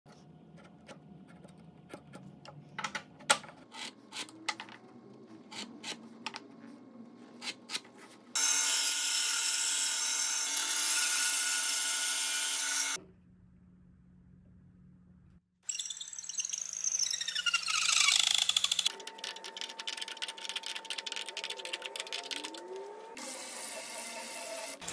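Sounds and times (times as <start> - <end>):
power saw cutting wood: 8.4 - 13.0
wooden pieces clicking and knocking: 18.2 - 22.6.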